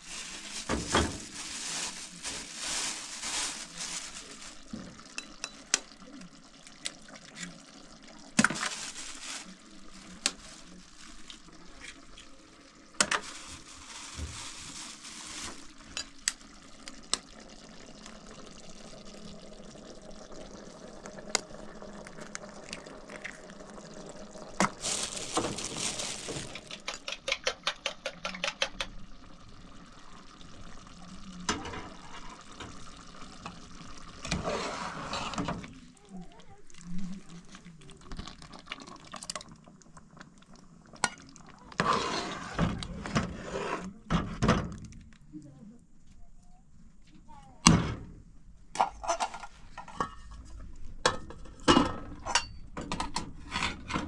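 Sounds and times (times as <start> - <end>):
liquid sloshing: 24.6 - 26.8.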